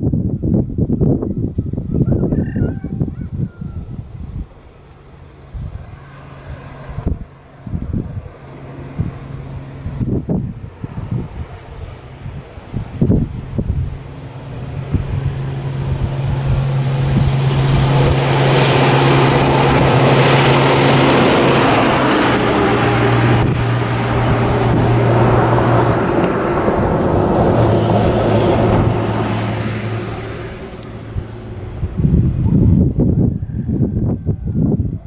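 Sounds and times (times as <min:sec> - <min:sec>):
truck driving past: 0:12.8 - 0:33.8.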